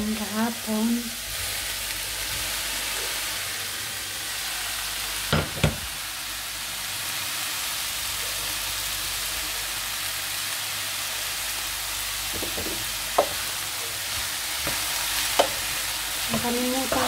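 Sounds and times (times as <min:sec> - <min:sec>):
vegetables sizzling in a frying pan: 0:00.0 - 0:17.0
cookware knocking: 0:12.4 - 0:13.4.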